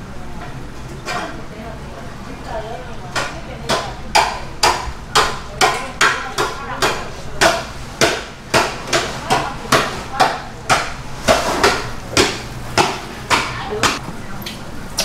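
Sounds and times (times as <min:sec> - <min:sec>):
knife chopping on cutting board: 0:03.2 - 0:14.0.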